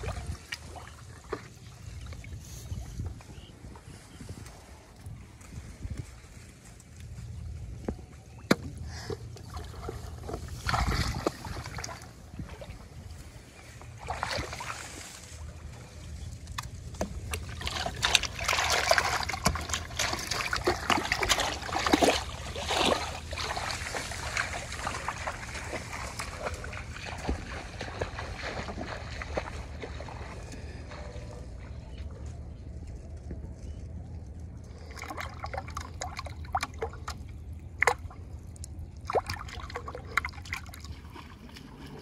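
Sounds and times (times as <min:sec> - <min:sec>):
water splashing and sloshing: 0:00.0 - 0:42.0.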